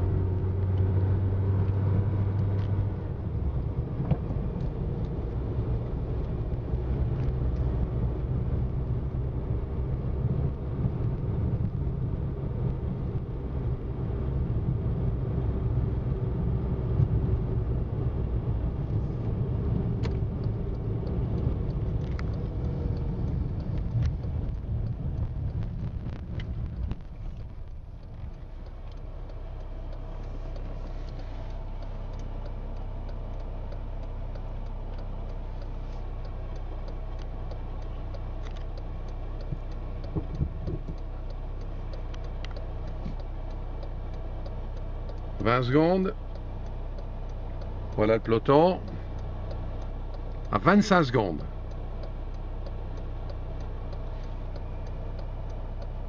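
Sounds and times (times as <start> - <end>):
motor vehicle rumble: 0.0 - 56.0
faint ticks: 3.5 - 8.0, 18.7 - 56.0.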